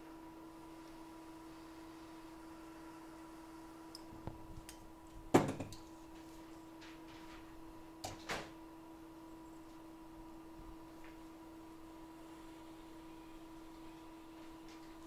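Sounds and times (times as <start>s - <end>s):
electrical hum: 0.0s - 15.0s
tools knocking on workbench: 5.3s - 5.8s.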